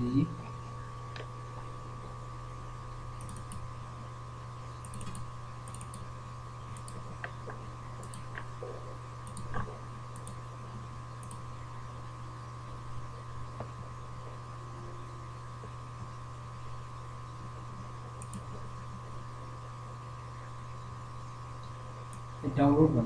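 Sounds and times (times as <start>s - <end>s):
steady low hum: 0.0s - 23.0s
computer mouse clicks: 3.2s - 3.7s, 4.8s - 6.1s, 6.7s - 8.5s, 9.2s - 10.4s, 11.2s - 11.5s, 18.2s - 18.7s.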